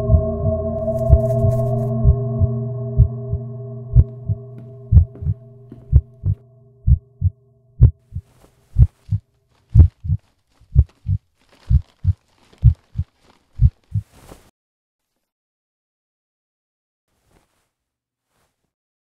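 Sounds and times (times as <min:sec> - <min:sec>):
low droning tone: 0:00.0 - 0:07.9
heartbeat thumps: 0:00.0 - 0:14.1.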